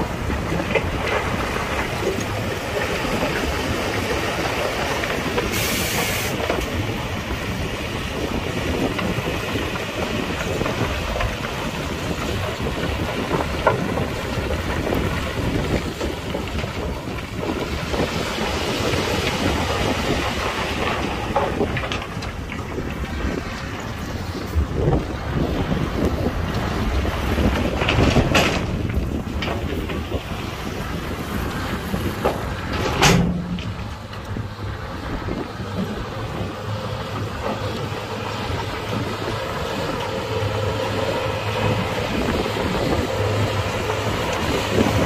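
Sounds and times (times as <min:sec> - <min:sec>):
heavy machinery rumble and clatter: 0:00.0 - 0:45.0.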